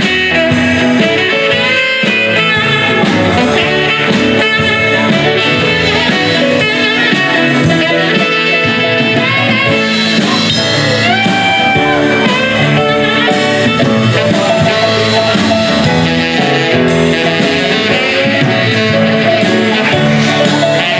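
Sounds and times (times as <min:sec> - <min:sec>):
acoustic guitar: 0:00.0 - 0:20.9
drum kit: 0:00.0 - 0:20.9
electric bass: 0:00.0 - 0:20.9
saxophone: 0:00.0 - 0:20.9.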